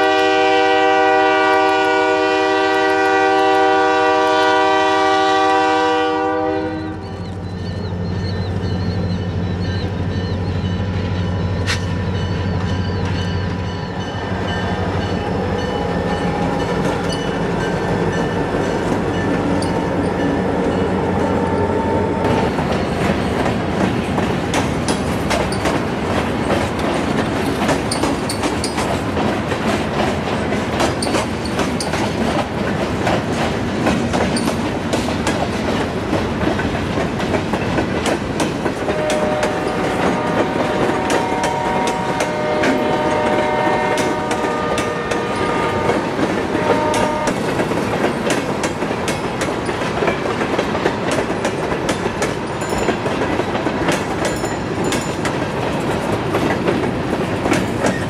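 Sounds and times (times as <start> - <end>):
diesel locomotive engine hum: 0.0 - 58.0
freight car wheels clickety-clack: 22.3 - 40.5, 46.0 - 58.0.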